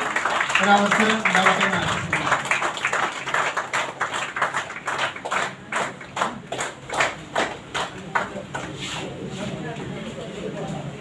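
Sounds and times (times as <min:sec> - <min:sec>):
audience applause: 0:00.0 - 0:08.7.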